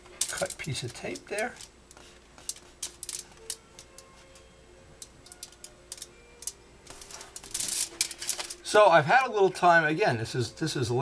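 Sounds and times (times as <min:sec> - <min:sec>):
tape clicking and ticking: 0:00.0 - 0:04.4, 0:05.0 - 0:08.6
rustling noise: 0:06.8 - 0:08.6.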